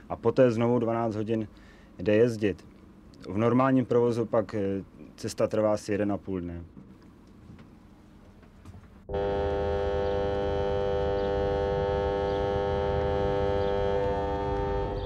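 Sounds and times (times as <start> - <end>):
boat horn blast: 9.1 - 15.0.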